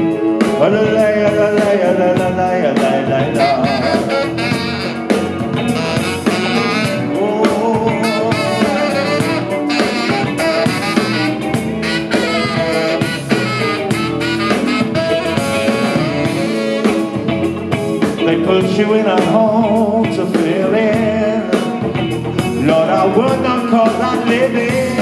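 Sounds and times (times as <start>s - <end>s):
rock band playing: 0.0s - 25.0s
saxophone solo: 3.4s - 7.3s, 8.0s - 17.5s.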